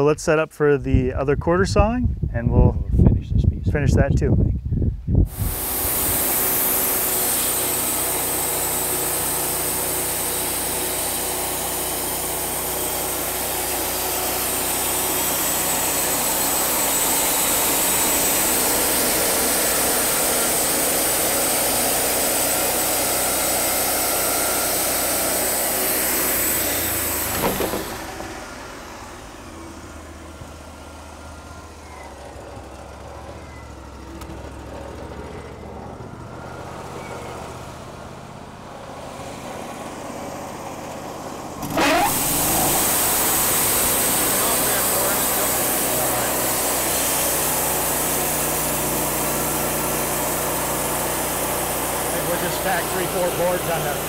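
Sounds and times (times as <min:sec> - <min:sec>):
band blade hissing through wood: 0:05.3 - 0:28.2
sawmill engine running: 0:05.3 - 0:54.0.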